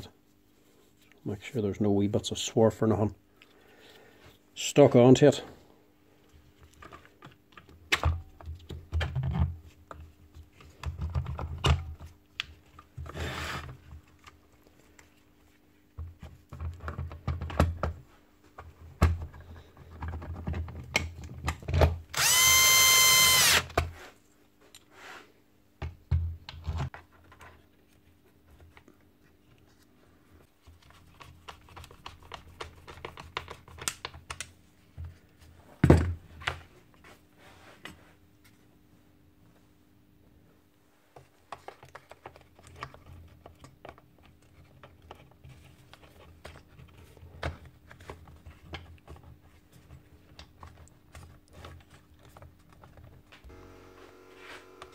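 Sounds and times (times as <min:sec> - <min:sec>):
cordless drill whining: 0:22.2 - 0:23.7, 0:53.5 - 0:54.9.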